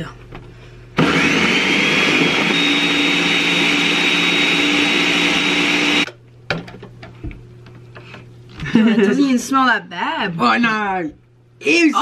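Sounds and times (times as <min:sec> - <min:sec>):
electric blender running: 0:01.0 - 0:06.1.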